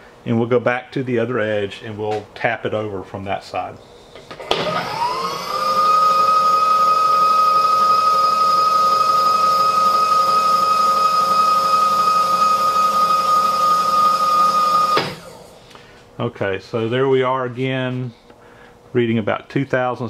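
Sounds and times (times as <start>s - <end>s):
power feed motor whine: 4.2s - 15.7s.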